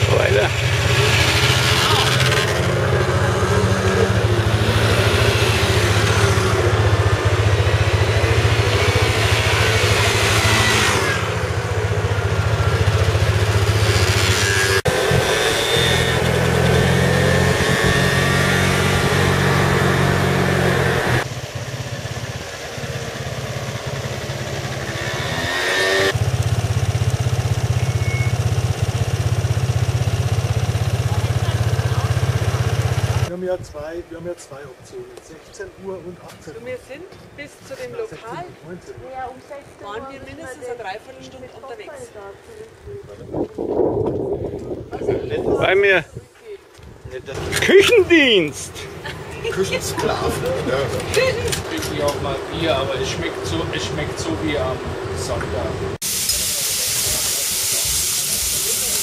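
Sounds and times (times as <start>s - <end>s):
scooter engine drone: 0.0s - 33.3s, 47.3s - 56.0s
wind noise: 42.7s - 47.6s.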